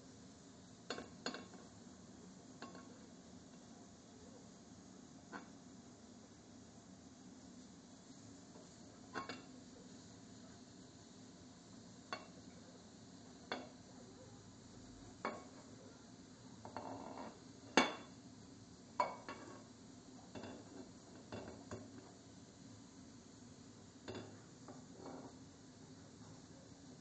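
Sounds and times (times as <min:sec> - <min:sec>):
dishes and cutlery clinking: 0:00.9 - 0:01.6, 0:02.6 - 0:03.0, 0:09.1 - 0:09.5, 0:15.3 - 0:15.6, 0:16.7 - 0:18.2, 0:19.0 - 0:19.6, 0:20.3 - 0:22.0, 0:24.1 - 0:24.4.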